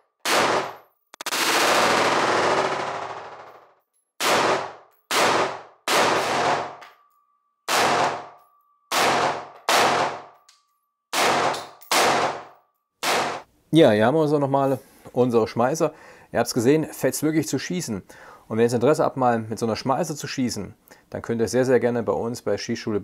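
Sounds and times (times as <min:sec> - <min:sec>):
rifle firing: 0:00.2 - 0:03.4, 0:04.2 - 0:06.8, 0:07.7 - 0:10.4, 0:11.1 - 0:13.5.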